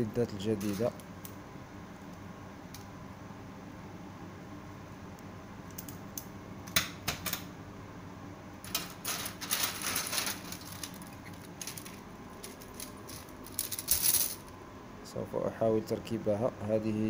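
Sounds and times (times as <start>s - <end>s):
metal strips clattering: 0.6s - 1.0s, 8.7s - 14.4s.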